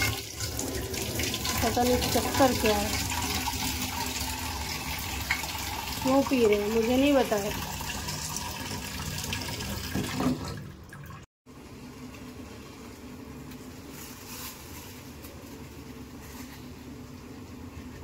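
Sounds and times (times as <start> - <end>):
water running from tap: 0.0 - 11.3.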